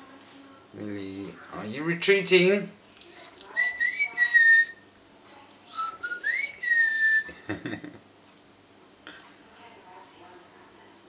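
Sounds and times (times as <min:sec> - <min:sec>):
person whistling: 0:03.6 - 0:04.8, 0:05.8 - 0:07.3.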